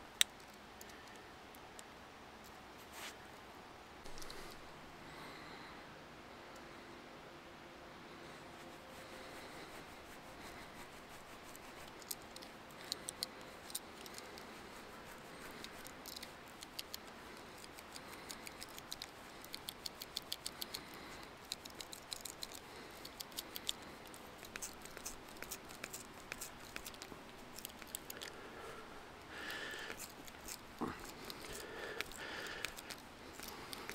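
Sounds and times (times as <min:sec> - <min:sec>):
knife scraping wood: 0:10.2 - 0:28.4, 0:29.3 - 0:33.9.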